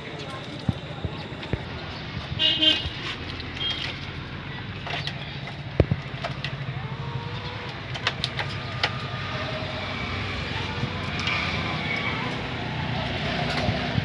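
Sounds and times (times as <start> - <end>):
vehicle engine rumble: 0.0 - 14.0.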